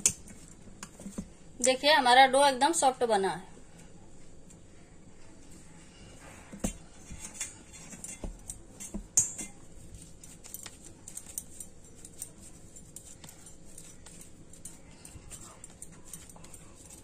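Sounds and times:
clinks and taps on steel plate: 0:06.6 - 0:09.6.

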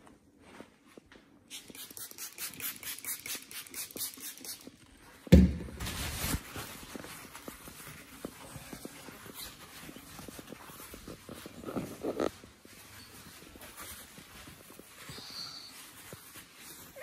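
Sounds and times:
footsteps on laminate floor: 0:06.6 - 0:17.0.

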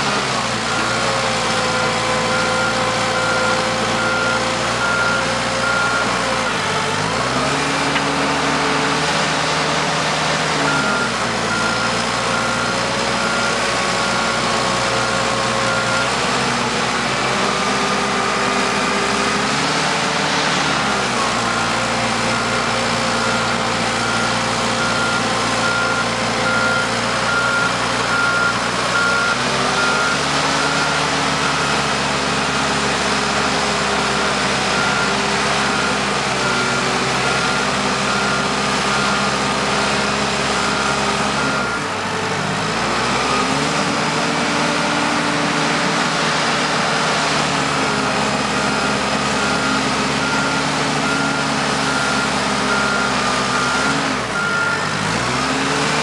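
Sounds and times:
bulldozer diesel engine: 0:00.0 - 0:56.0
back-up alarm beeping: 0:10.6 - 0:13.5, 0:48.8 - 0:55.0.

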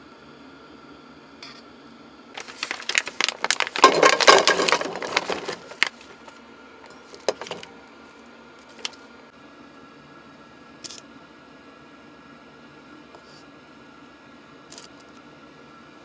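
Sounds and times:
faint steady hum: 0:00.0 - 0:16.0
rustling and clinking: 0:02.4 - 0:06.3, 0:07.0 - 0:07.7.

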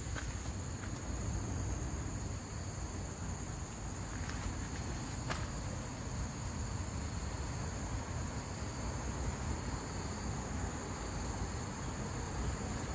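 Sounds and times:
insects droning: 0:00.0 - 0:12.9.

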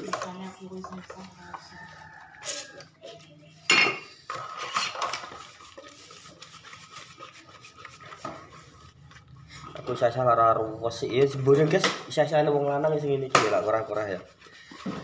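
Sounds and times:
dishes and cutlery clattering: 0:03.6 - 0:05.6.

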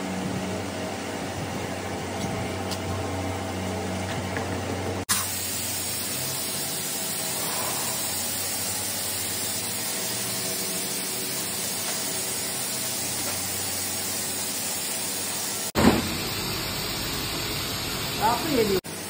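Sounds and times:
steady hiss: 0:05.1 - 0:18.9.

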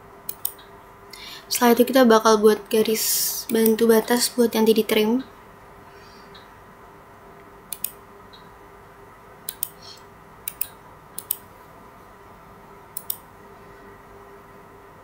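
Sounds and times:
faint steady hum: 0:00.0 - 0:15.0
computer mouse button clicks: 0:09.5 - 0:09.8.

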